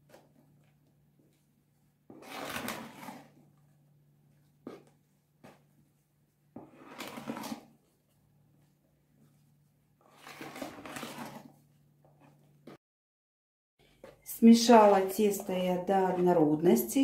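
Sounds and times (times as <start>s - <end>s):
utensil scraping batter in bowl: 2.0s - 3.7s, 6.5s - 8.2s, 9.1s - 12.8s, 14.0s - 17.0s.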